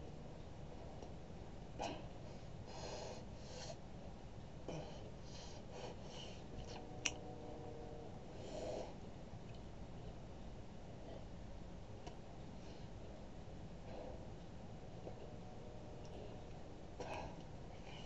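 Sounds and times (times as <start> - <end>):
low room noise: 0.0 - 18.0
faint breaths: 0.6 - 4.0, 4.6 - 9.1, 12.4 - 18.0.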